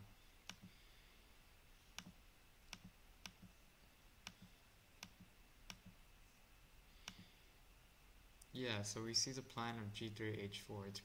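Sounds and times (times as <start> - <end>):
computer mouse clicks: 0.4 - 0.7, 1.9 - 3.5, 4.2 - 6.0, 7.0 - 7.3.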